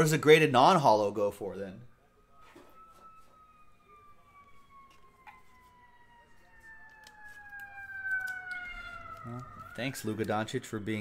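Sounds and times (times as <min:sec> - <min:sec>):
siren wailing: 0:00.0 - 0:11.0
cards clicking: 0:06.9 - 0:10.6.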